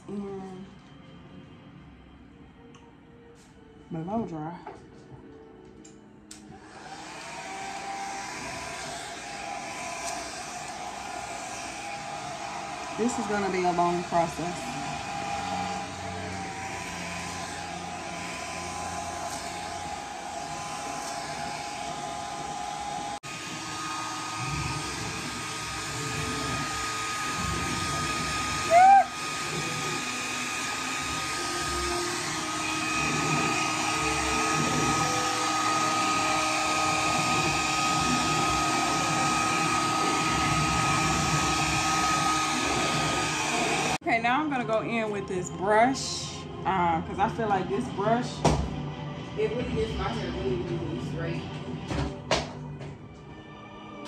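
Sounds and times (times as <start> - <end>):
hair dryer blowing: 6.3 - 45.0, 49.4 - 51.3.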